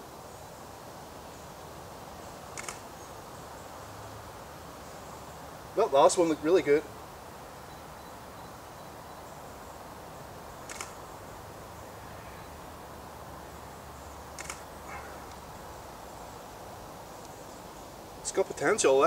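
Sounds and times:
steady background hiss: 0.0s - 19.0s
camera shutter clicks: 2.6s - 2.8s, 10.6s - 11.0s, 14.4s - 14.7s.

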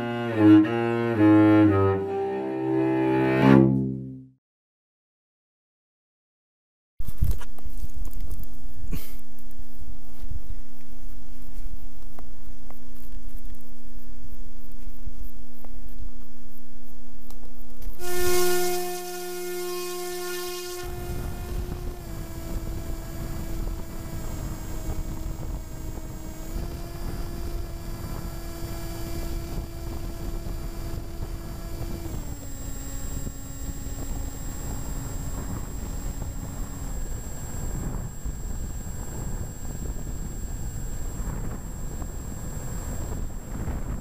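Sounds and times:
electric motor whining: 17.8s - 44.0s.

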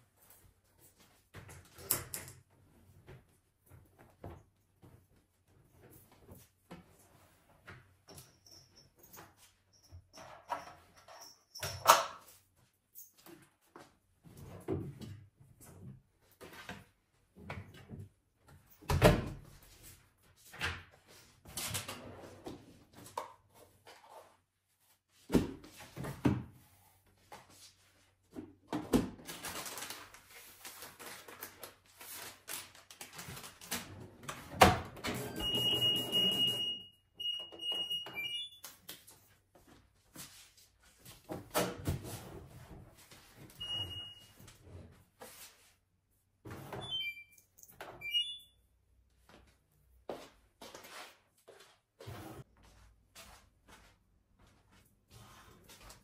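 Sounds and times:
control panel beeps: 46.8s - 47.4s, 48.0s - 48.5s.

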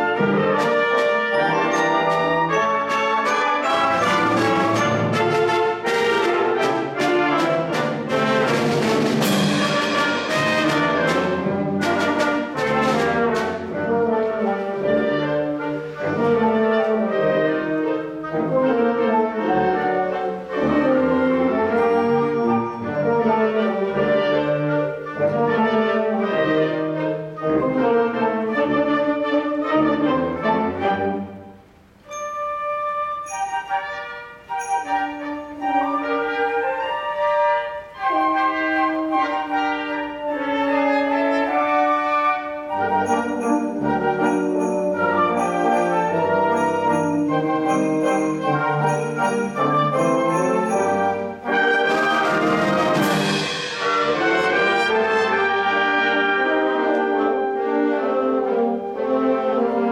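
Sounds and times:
concert wind band playing: 0.0s - 59.9s
sharp percussion strikes: 0.5s - 13.6s, 32.1s - 35.9s, 42.9s - 51.6s, 52.8s - 55.0s.

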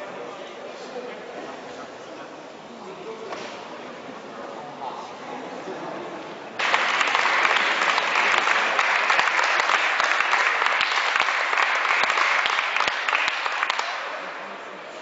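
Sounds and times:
audience applauding: 6.6s - 14.5s.

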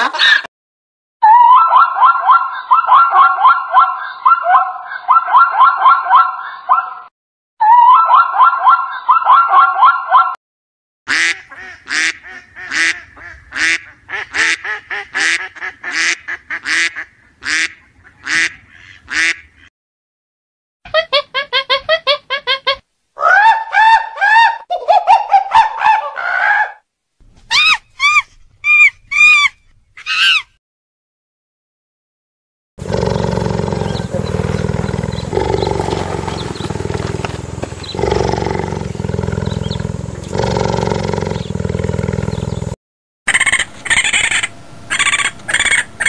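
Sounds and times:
animal calls: 1.2s - 10.3s, 23.2s - 26.8s, 32.8s - 42.7s
goose honks: 11.1s - 19.5s
zebra barking bray: 32.8s - 42.6s.

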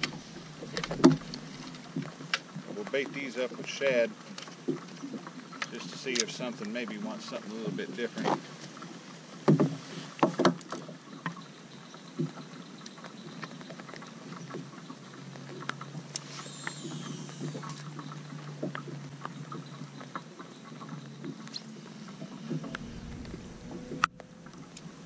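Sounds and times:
low steady hum: 14.8s - 25.0s.

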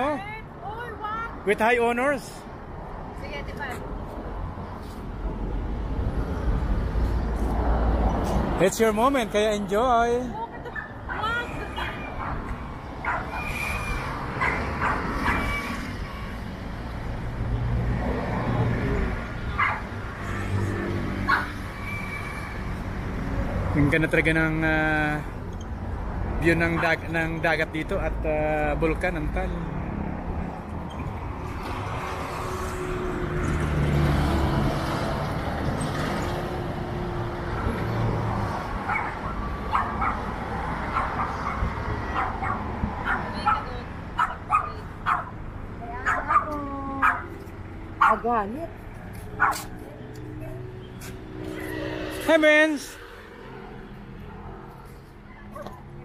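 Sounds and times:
road traffic rumble: 0.0s - 56.0s
dog barking: 13.0s - 13.4s, 14.4s - 15.4s, 19.6s - 19.9s, 38.9s - 40.3s, 40.9s - 45.4s, 46.0s - 47.3s, 48.0s - 48.3s, 49.4s - 49.7s
vehicle engine: 13.0s - 56.0s.

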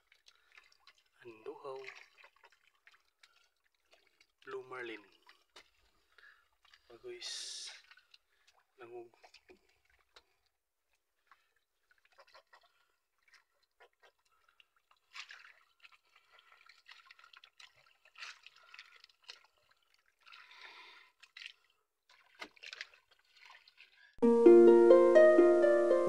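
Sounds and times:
water dripping off net: 0.0s - 10.4s, 14.2s - 24.0s.

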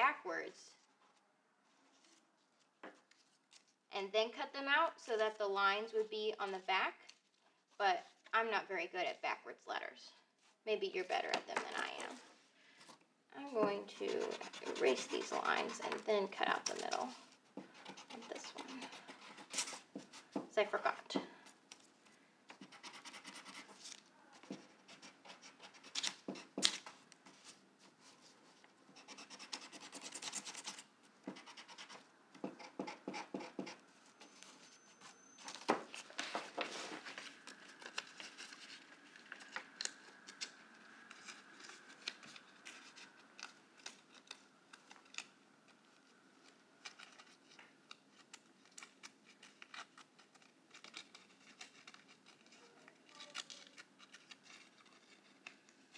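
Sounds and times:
pencil eraser rubbing: 13.5s - 20.4s, 22.5s - 23.8s, 29.0s - 35.2s.

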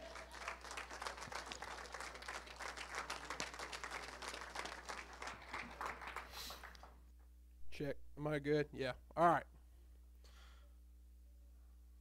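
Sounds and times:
crowd applauding: 0.0s - 7.0s.

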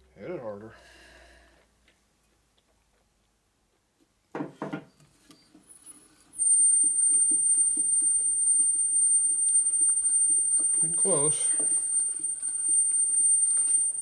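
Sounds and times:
high-pitched squeal: 6.4s - 14.0s
soft rhythmic ticking: 6.4s - 14.0s.

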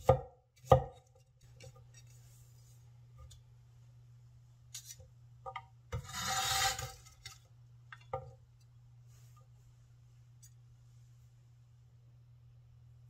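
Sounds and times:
cleaver scraping wooden board: 6.0s - 7.0s.

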